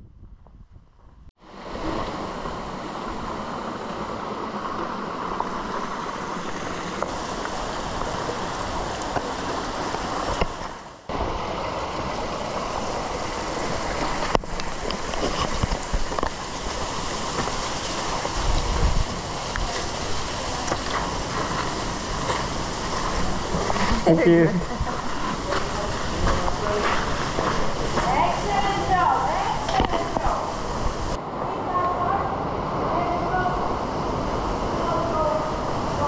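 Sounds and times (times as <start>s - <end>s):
meltwater rushing through ice: 1.4s - 31.2s.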